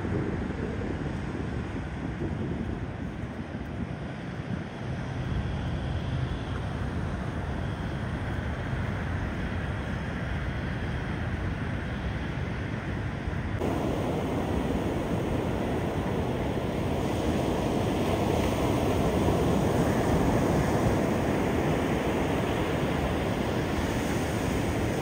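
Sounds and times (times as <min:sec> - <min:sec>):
ocean surf washing on beach: 0:00.0 - 0:07.5, 0:13.5 - 0:25.0
wind buffeting microphone: 0:00.0 - 0:25.0
close breaking surf: 0:13.6 - 0:25.0.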